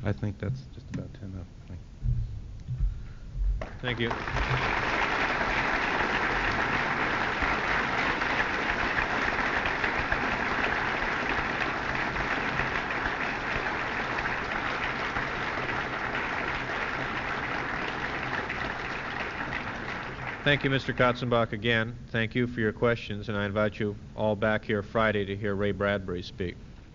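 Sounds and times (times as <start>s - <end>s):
audience applauding: 3.6s - 21.4s.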